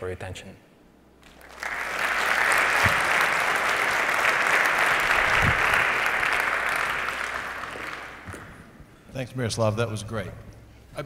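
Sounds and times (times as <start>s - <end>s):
audience applauding: 1.2s - 8.6s.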